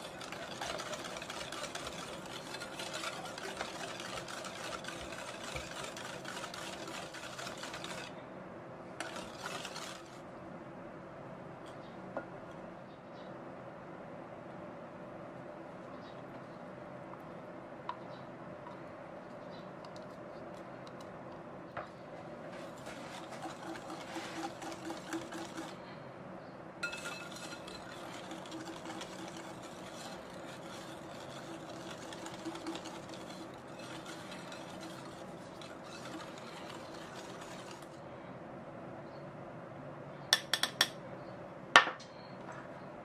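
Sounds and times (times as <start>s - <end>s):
whisk scraping glass bowl: 0.0s - 8.1s, 9.0s - 10.2s, 22.6s - 25.8s, 26.8s - 38.0s.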